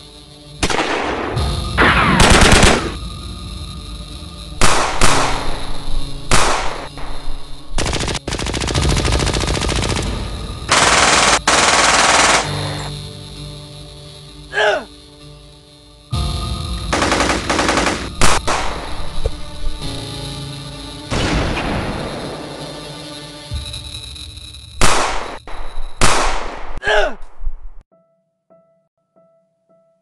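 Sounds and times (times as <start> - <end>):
soft background music: 0.0 - 25.2
automatic gunfire: 2.0 - 3.0, 6.3 - 6.9, 7.8 - 12.8, 17.0 - 18.9, 26.0 - 26.8.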